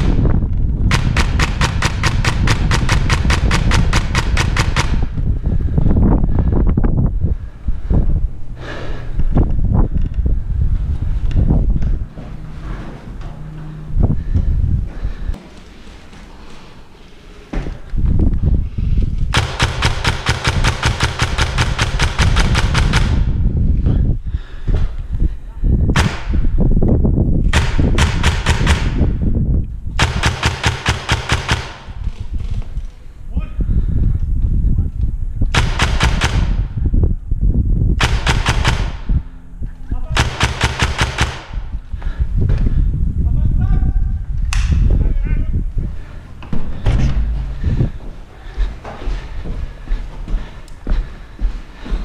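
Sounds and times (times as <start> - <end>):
low rumble: 0.0 - 17.0, 20.5 - 30.2, 31.9 - 52.0
airsoft gun full-auto firing: 0.9 - 5.0, 19.3 - 23.3, 30.0 - 31.9, 35.6 - 36.6, 38.0 - 39.0, 40.2 - 41.5
airsoft rifle full-auto burst: 19.4 - 23.2.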